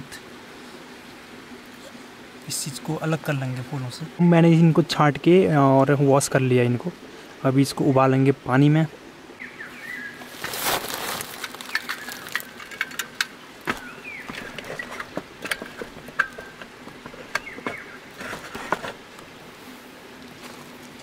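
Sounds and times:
groundsheet rustling: 0:10.2 - 0:13.0, 0:13.6 - 0:19.1
camping stove parts clicking and knocking: 0:11.3 - 0:19.0.

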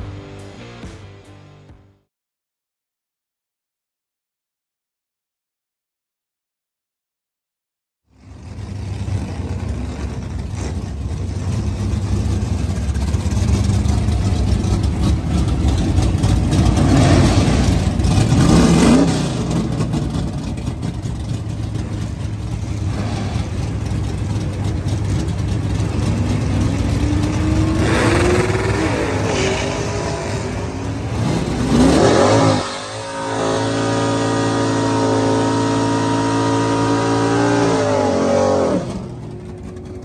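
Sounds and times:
car engine rough idle: 0:08.1 - 0:18.5, 0:19.4 - 0:31.7, 0:39.1 - 0:40.0
car engine revving: 0:08.2 - 0:40.0.

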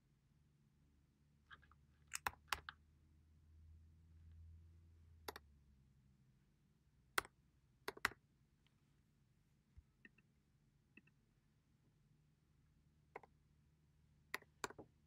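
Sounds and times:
keyboard key clicks: 0:02.1 - 0:02.7.

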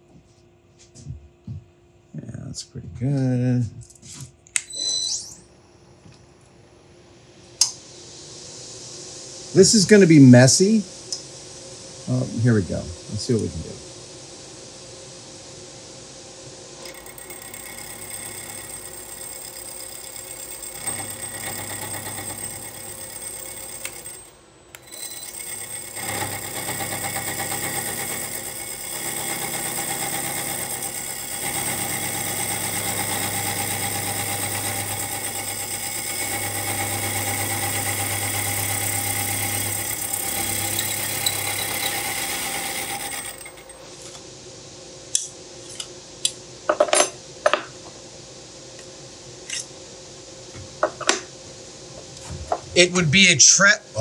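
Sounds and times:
milling machine cutting: 0:16.8 - 0:43.8.

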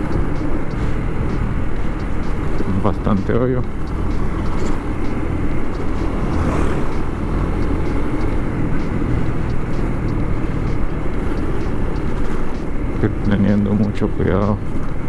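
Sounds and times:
motorcycle engine drone: 0:00.0 - 0:15.0
wind rush on microphone: 0:00.0 - 0:15.0.

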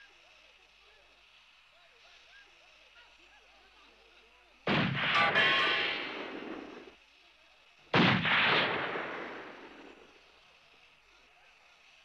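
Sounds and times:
loud blasts: 0:04.7 - 0:06.9, 0:07.9 - 0:10.1.

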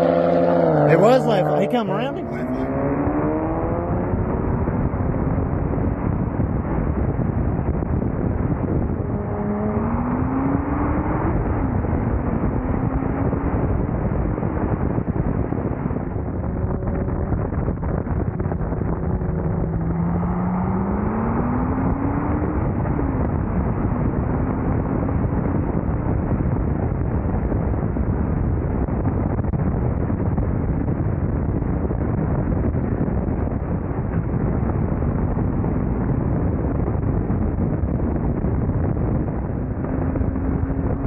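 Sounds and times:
car engine revving: 0:00.0 - 0:25.7
wind and road noise: 0:00.0 - 0:41.0.

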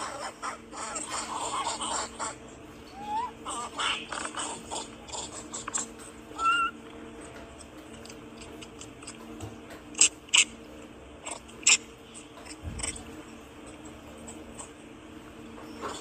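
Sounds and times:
faint steady hum: 0:00.0 - 0:16.0
monkey rising squeak: 0:06.4 - 0:06.8.

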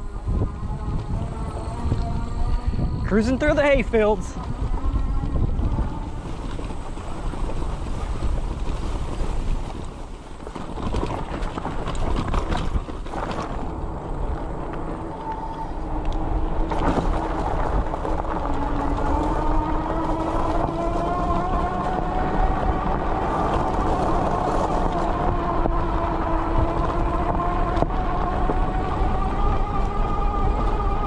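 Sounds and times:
electric motor whine: 0:00.0 - 0:03.0, 0:13.4 - 0:31.0
tires rolling over ground: 0:00.0 - 0:31.0
wind buffeting microphone: 0:00.0 - 0:31.0.

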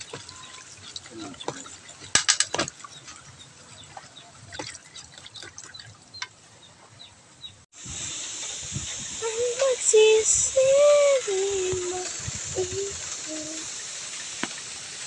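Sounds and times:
liquid sloshing in plastic tub: 0:00.0 - 0:06.4
chicken sizzling over fire: 0:07.8 - 0:15.0.

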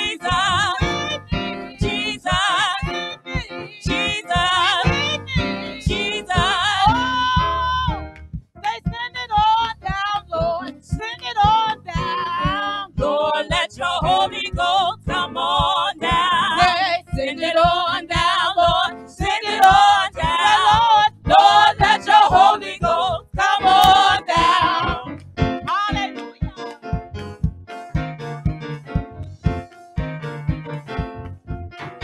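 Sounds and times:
gospel singers: 0:00.0 - 0:08.0, 0:08.8 - 0:26.8
woman singing lead: 0:00.0 - 0:08.0, 0:08.7 - 0:25.1, 0:25.7 - 0:26.7
backing music with steady beat: 0:00.0 - 0:32.0.

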